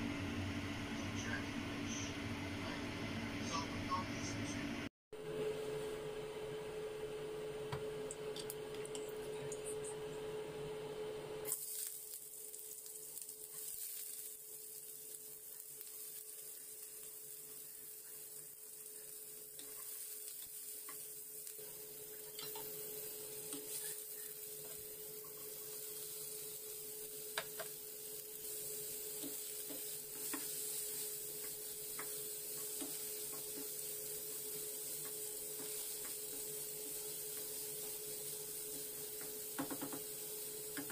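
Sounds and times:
steady hum: 0.0 - 11.5
food sizzling in oil: 11.4 - 40.9.

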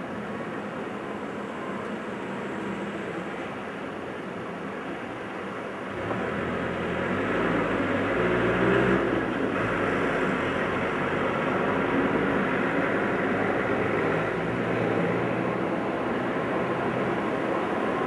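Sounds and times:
high-speed train rushing: 8.9 - 18.0.

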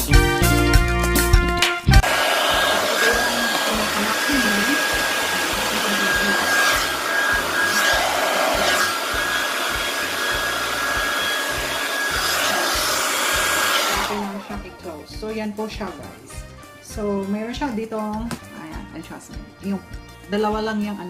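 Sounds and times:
hair dryer running: 1.9 - 14.9.

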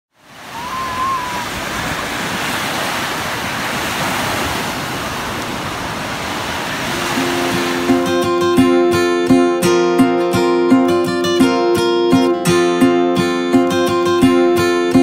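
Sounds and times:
small waves breaking on sand: 0.1 - 8.5.

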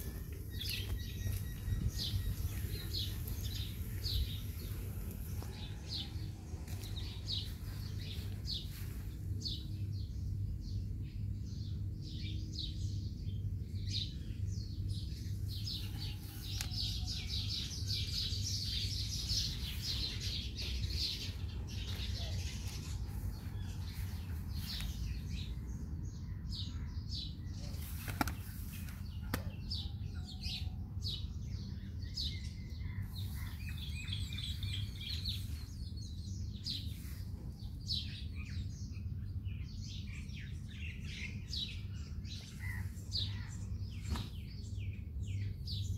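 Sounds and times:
low background rumble: 0.0 - 27.6
small birds chirping: 0.0 - 45.9.

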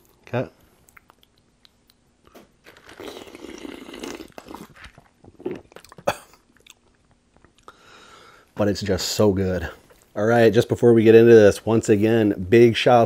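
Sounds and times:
person slurping and gulping: 2.6 - 7.7.

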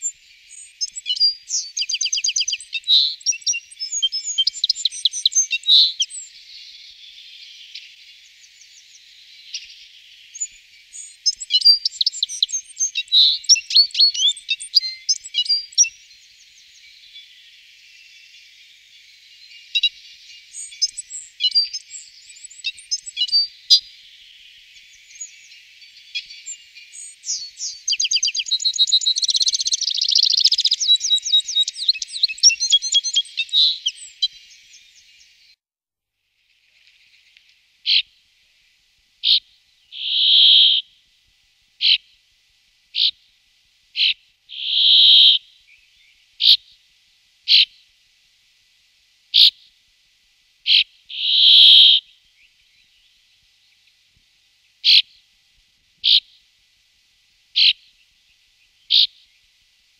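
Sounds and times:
bird short spaced calls: 0.0 - 6.8, 8.7 - 16.0, 26.1 - 34.5, 37.8 - 38.1, 39.2 - 40.9, 41.8 - 42.2, 43.0 - 43.2, 44.0 - 45.5, 46.4 - 46.7, 47.5 - 47.8, 49.4 - 49.6, 50.7 - 52.1, 54.8 - 55.2, 56.0 - 56.4, 57.6 - 58.0, 58.9 - 59.3
finch jingling twitter song: 0.0 - 7.9, 8.5 - 17.4, 19.3 - 23.9, 24.8 - 34.9
bird buzzing notes: 44.5 - 45.4, 51.1 - 52.0.

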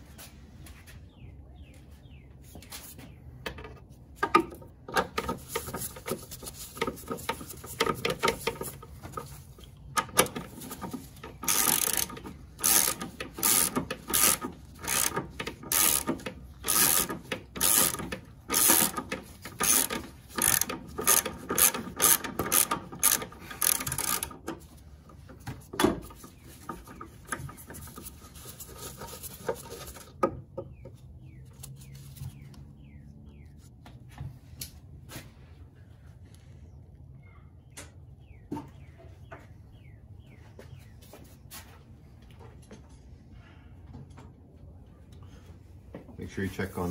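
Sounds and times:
socket ratchet clicking: 11.4 - 24.3.

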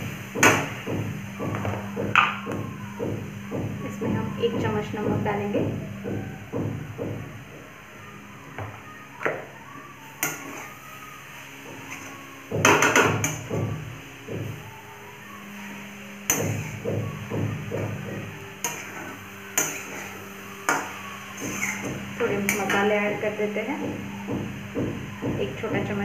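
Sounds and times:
metal spatula scraping a metal pan: 10.2 - 10.8, 18.6 - 22.9.

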